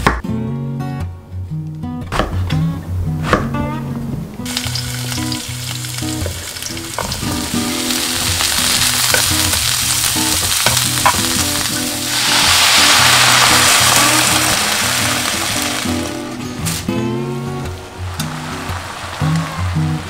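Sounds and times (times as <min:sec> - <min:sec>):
water hissing in hot pan: 0:04.5 - 0:16.8, 0:18.0 - 0:20.0
food sizzling in a frying pan: 0:04.5 - 0:16.9, 0:18.0 - 0:20.0.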